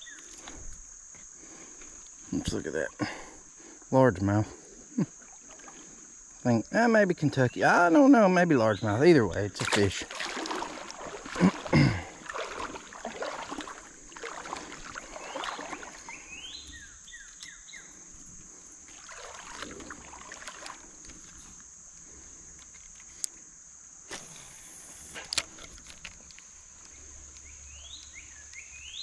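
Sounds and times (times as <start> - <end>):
water splashing in a creek: 5.0 - 6.8, 8.6 - 21.6.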